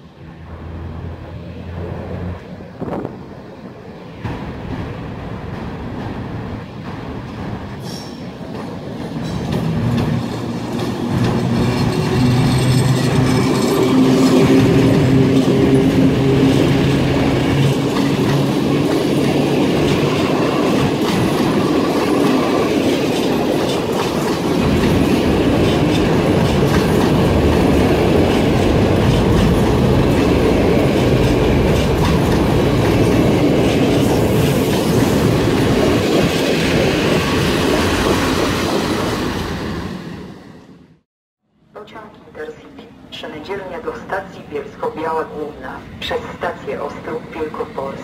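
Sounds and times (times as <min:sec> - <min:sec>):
train wheels clicking over rail joints: 0:04.2 - 0:36.6
electric locomotive hum: 0:08.7 - 0:40.8.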